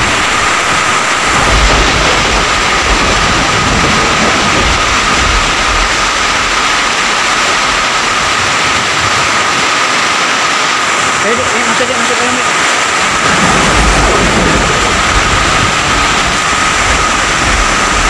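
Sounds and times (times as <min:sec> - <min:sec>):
deep low rumble: 0:00.0 - 0:09.2, 0:13.2 - 0:18.0
heavy rain pouring: 0:00.0 - 0:18.0.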